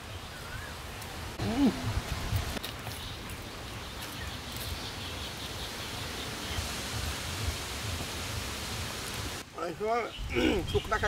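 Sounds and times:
wind on microphone: 1.4s - 2.6s.

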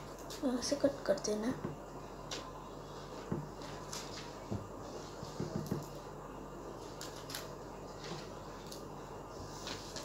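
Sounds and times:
paper rustling: 3.6s - 5.9s, 9.4s - 10.0s.

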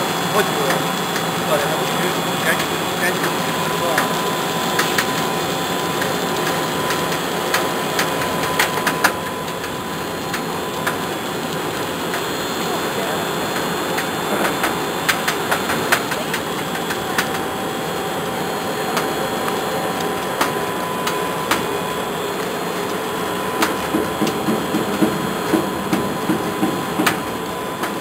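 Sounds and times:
snack cutting machine running: 0.0s - 28.0s
sharp clicks and knocks: 4.8s - 5.3s, 13.6s - 17.4s, 23.6s - 28.0s.

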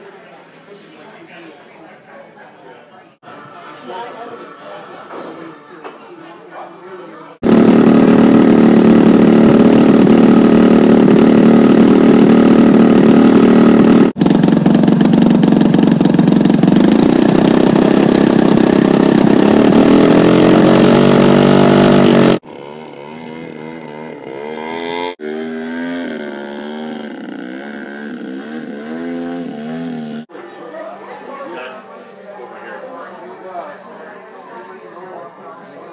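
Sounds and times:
model airplane engine revving: 7.4s - 30.3s.

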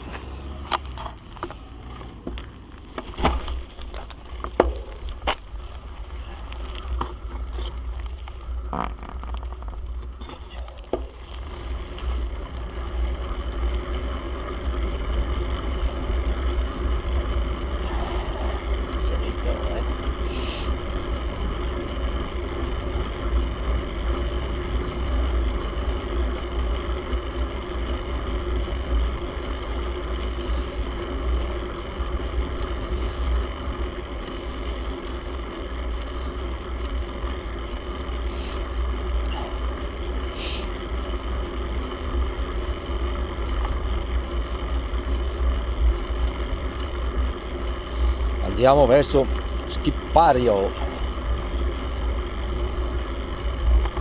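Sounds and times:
faint steady hum: 0.0s - 54.0s
sharp clicks and knocks: 0.1s - 5.5s.

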